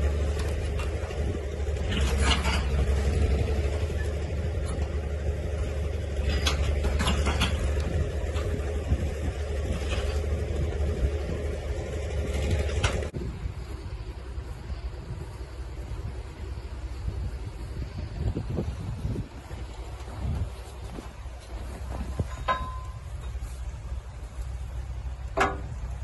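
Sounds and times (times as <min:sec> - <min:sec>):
diesel engine running: 0:00.0 - 0:26.0
creaks and clanks: 0:00.1 - 0:10.8, 0:19.9 - 0:23.7, 0:25.3 - 0:26.0.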